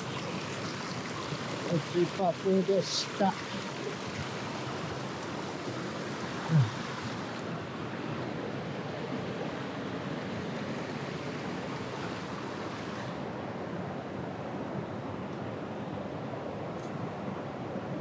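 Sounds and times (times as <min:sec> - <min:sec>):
stream rushing over rocks: 0:00.0 - 0:18.0.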